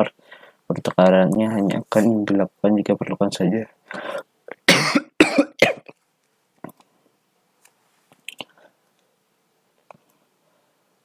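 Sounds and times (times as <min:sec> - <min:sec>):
person coughing: 0:04.0 - 0:06.0.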